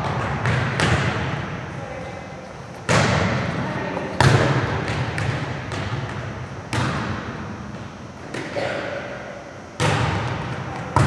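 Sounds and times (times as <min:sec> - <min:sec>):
volleyball slaps echoing: 0:00.0 - 0:01.6, 0:02.8 - 0:09.1, 0:09.8 - 0:11.0.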